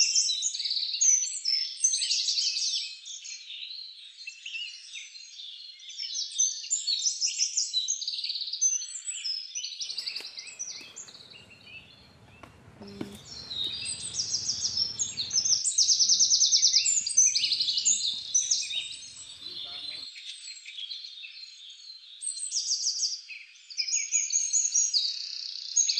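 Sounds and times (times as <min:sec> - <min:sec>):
birds chirping and trilling: 0:09.8 - 0:22.1.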